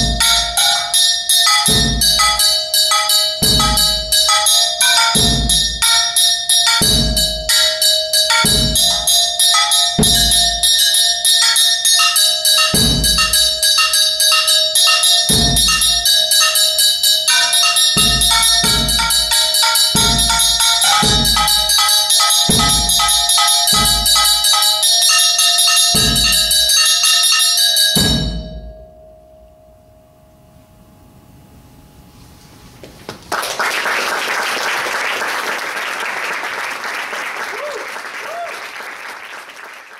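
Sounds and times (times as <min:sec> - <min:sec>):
fast strikes on ringing metal: 0:00.0 - 0:31.0
bass drum kicks: 0:01.7 - 0:02.4, 0:05.2 - 0:05.8, 0:08.5 - 0:09.0, 0:12.8 - 0:13.6, 0:18.0 - 0:19.4, 0:20.0 - 0:21.8, 0:22.5 - 0:24.4, 0:26.0 - 0:26.6, 0:28.0 - 0:28.7.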